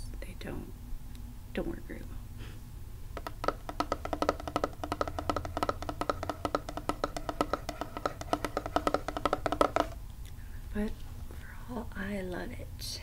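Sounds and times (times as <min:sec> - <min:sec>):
fingernails tapping on plastic case: 0:03.2 - 0:10.0.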